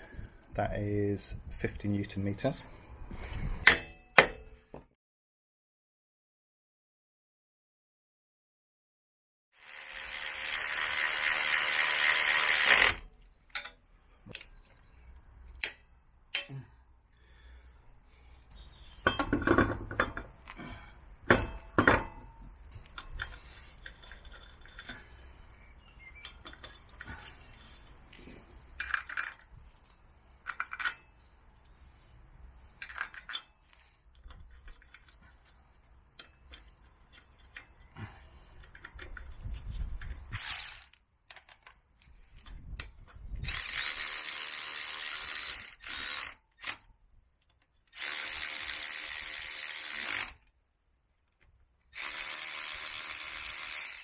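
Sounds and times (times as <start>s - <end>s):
cordless electric ratchet whirring: 9.6s - 13.0s, 40.3s - 41.0s, 43.4s - 46.8s, 47.9s - 50.5s, 51.9s - 54.0s.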